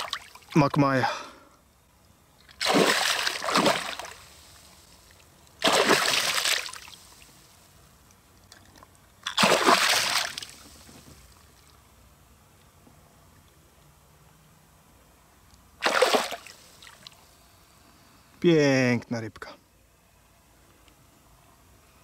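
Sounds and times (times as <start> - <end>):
fish splashing in water: 2.5 - 4.8, 5.6 - 7.2, 9.2 - 10.8, 15.8 - 17.2.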